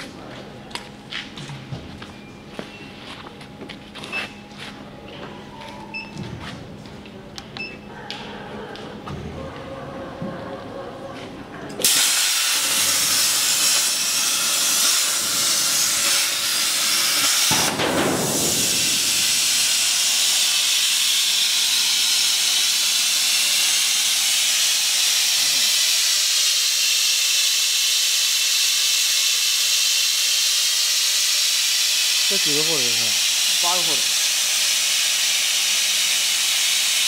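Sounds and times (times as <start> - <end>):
plasma torch hissing: 11.8 - 37.0.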